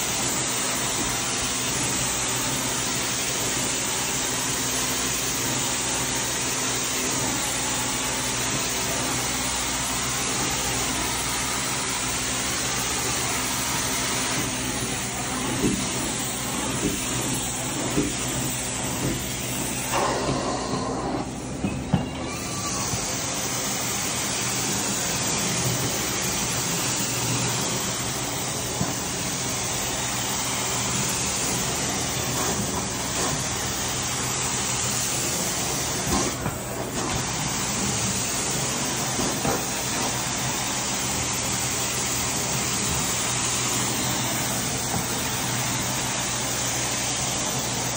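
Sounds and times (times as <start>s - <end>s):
vacuum suction and water spray hiss: 22.3s - 47.9s.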